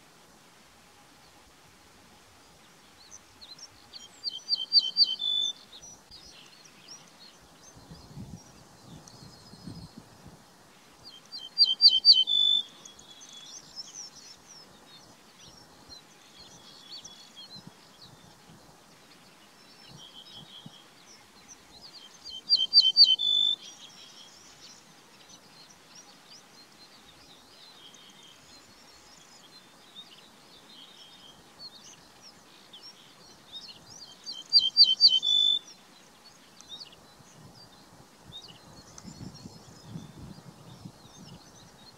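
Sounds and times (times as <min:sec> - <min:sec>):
bunting singing: 0:27.4 - 0:37.2.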